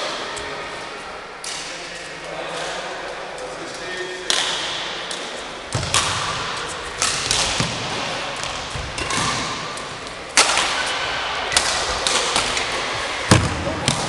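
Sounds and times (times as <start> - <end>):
racket hitting shuttlecock: 4.3 - 14.0.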